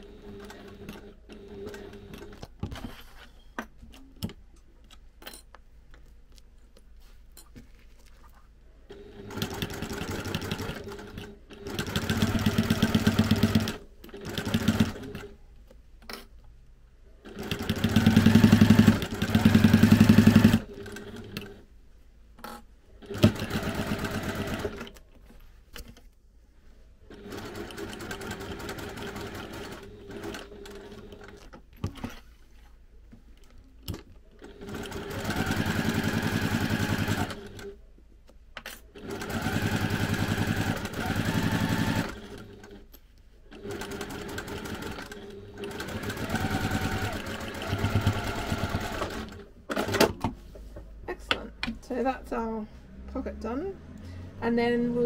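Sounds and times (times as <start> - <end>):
sewing machine stitching: 8.9 - 15.3, 17.2 - 21.6, 23.0 - 25.0, 27.1 - 32.2, 34.4 - 37.8, 38.9 - 42.8, 43.5 - 50.2.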